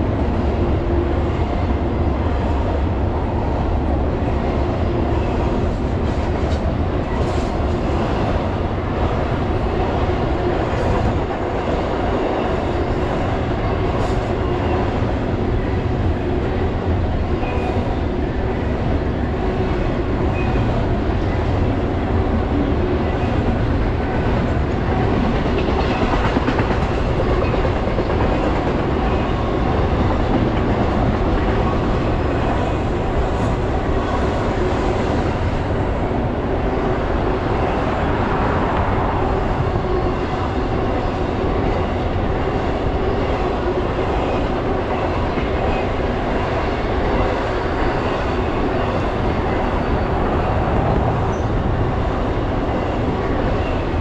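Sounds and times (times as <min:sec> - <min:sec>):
steel wheels rumbling on rails: 0:00.0 - 0:54.0.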